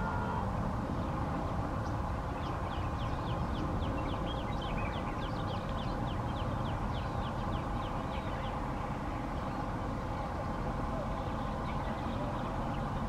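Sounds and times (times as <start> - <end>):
distant diesel locomotive drone: 0.0 - 13.0
bird chirping: 1.8 - 8.6.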